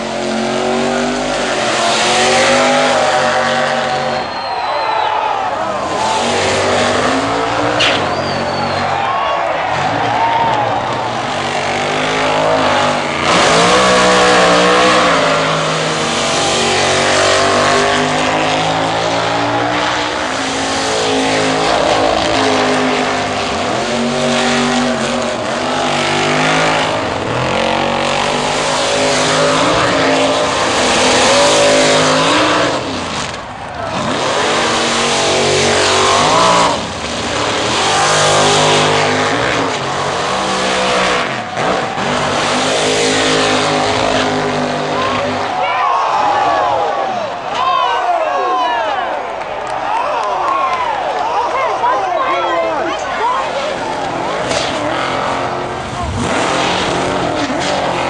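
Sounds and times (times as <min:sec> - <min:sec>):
drag racing cars accelerating: 0:00.0 - 0:58.0.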